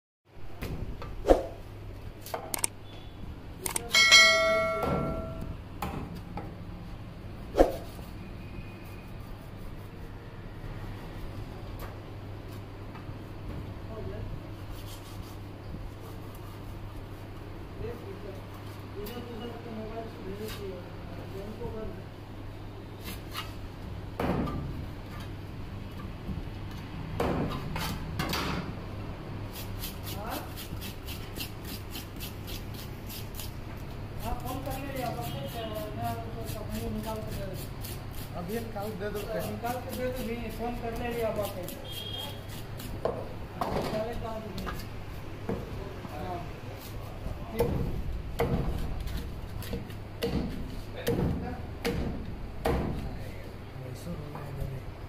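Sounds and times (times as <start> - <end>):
bright bell-like ring: 3.9 - 5.5
knife scraping fish scales: 14.7 - 17.3, 29.5 - 33.6, 34.2 - 43.0.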